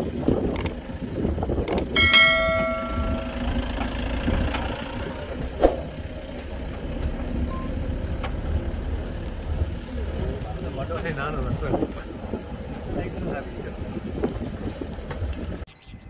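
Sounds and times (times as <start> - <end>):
jeep engine idling: 0.6 - 11.4
bell chime: 2.0 - 3.6.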